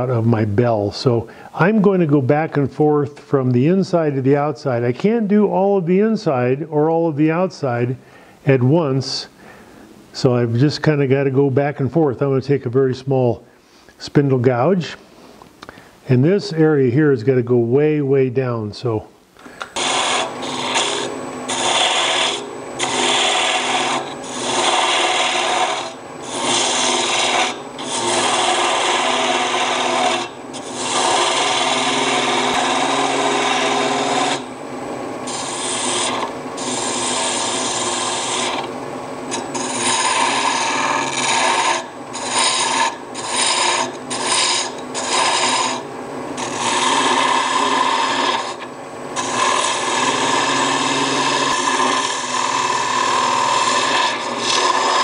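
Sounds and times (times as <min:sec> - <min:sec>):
lathe humming: 0:19.6 - 0:55.0
gouge scraping wood on lathe: 0:19.7 - 0:34.5, 0:35.2 - 0:38.7, 0:39.3 - 0:55.0.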